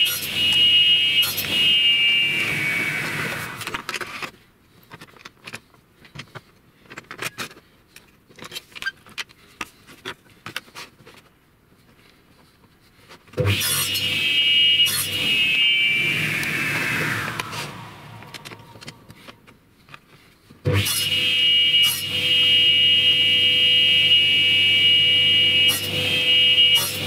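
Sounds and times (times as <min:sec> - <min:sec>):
table saw whining down: 0:00.0 - 0:03.9, 0:13.4 - 0:19.2, 0:20.7 - 0:21.2, 0:21.8 - 0:22.2, 0:25.3 - 0:27.0
saw motor starting with thump: 0:02.4 - 0:03.9, 0:16.0 - 0:19.1
clicks and knocks of wood handled: 0:03.6 - 0:13.4.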